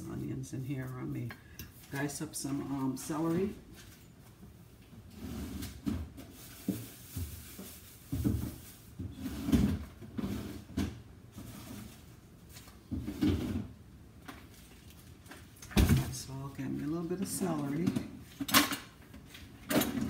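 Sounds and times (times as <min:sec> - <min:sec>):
cupboard doors and drawers shutting: 0:09.0 - 0:11.0, 0:19.6 - 0:20.0.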